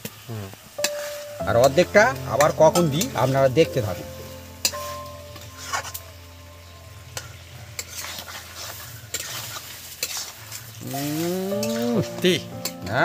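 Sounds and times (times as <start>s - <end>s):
food sizzling in a pan: 0.0s - 13.0s
spatula scraping a pan: 4.7s - 6.0s, 7.2s - 12.1s.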